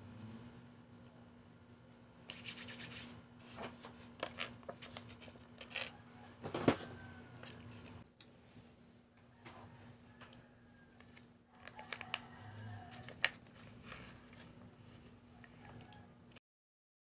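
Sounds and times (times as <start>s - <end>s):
plastic packet rustling and crinkling: 11.0s - 14.6s.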